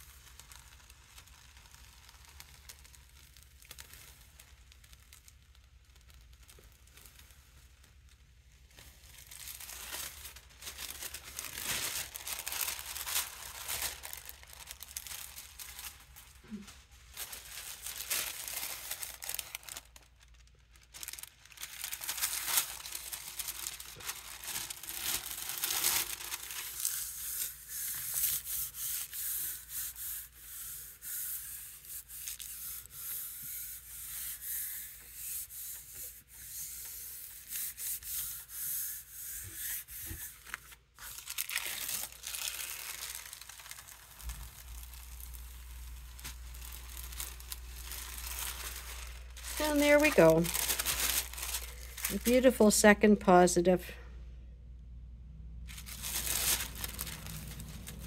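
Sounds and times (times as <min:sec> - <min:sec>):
tissue paper crinkling: 0:00.0 - 0:53.8, 0:55.6 - 0:58.0
hand rubbing paper: 0:08.8 - 0:20.2, 0:20.9 - 0:52.7.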